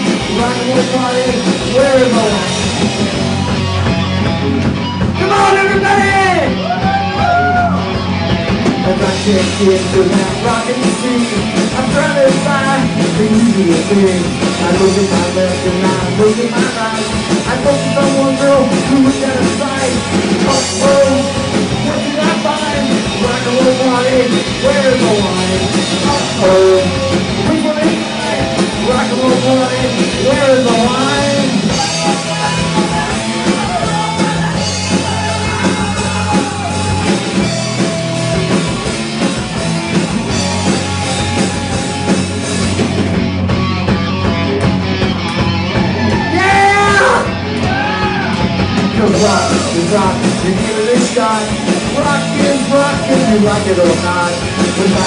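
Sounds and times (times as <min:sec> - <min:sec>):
live punk rock band: 0:00.0 - 0:55.0
person singing: 0:00.2 - 0:02.8, 0:08.8 - 0:37.8, 0:46.2 - 0:55.0.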